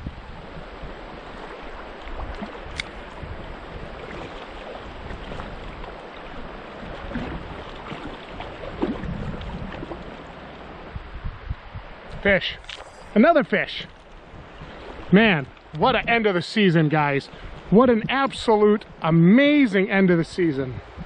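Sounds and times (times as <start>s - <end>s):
wind on microphone: 0.0s - 13.2s, 13.8s - 16.4s, 17.0s - 19.1s, 20.3s - 21.0s
river flowing over rocks: 0.3s - 11.0s.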